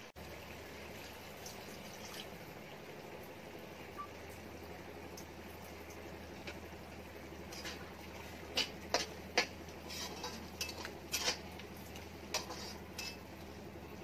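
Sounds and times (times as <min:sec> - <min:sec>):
spatula clinking and scraping pan: 0:07.5 - 0:13.4.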